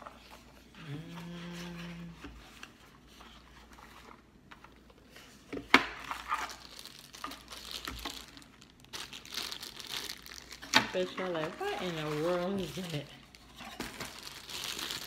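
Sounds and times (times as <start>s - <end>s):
plastic bag crinkling: 6.0s - 15.0s.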